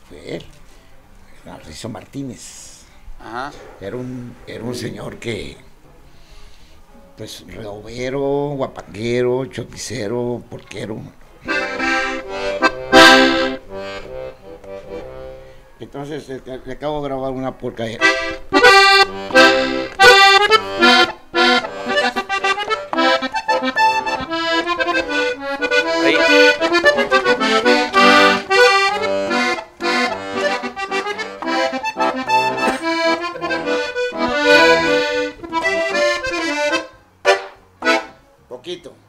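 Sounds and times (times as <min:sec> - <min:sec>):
accordion playing a polka: 0:04.6 - 0:05.5, 0:11.4 - 0:15.8, 0:18.0 - 0:38.3.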